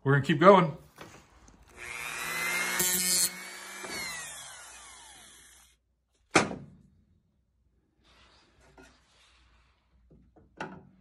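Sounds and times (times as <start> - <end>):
rotary cutter cutting metal: 1.7 - 5.8.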